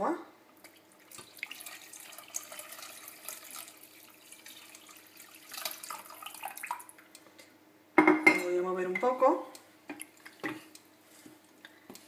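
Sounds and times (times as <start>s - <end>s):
water pouring into a pot: 0.7s - 7.0s.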